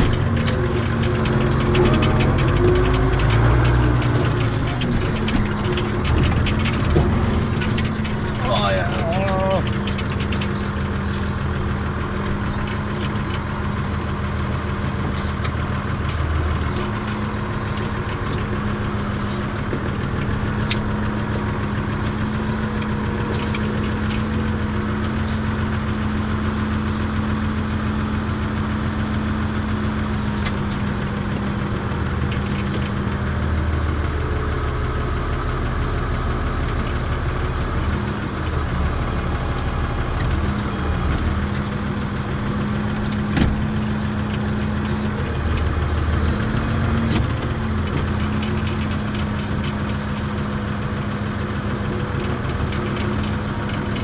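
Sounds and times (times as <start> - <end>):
light clicks and rattles: 0.0 - 13.9, 42.8 - 50.4
tractor diesel engine running: 0.0 - 54.0.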